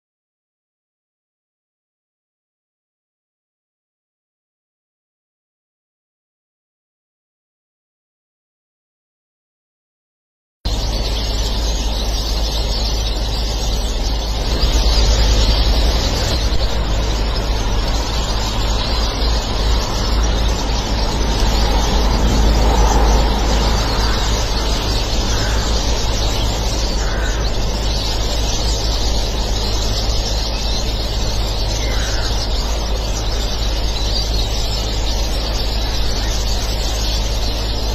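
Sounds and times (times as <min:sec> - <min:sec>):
low rumble: 0:10.7 - 0:33.5.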